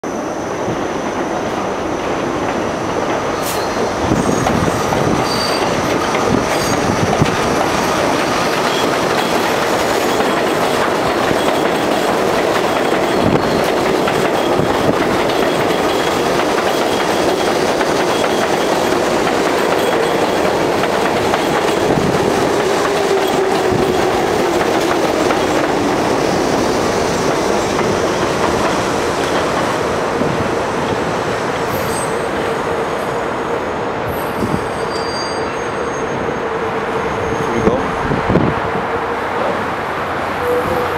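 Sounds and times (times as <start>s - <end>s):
train rumbling on elevated track: 0.0s - 40.9s
high wheel squeals: 3.4s - 5.8s, 31.7s - 32.4s, 34.1s - 37.9s.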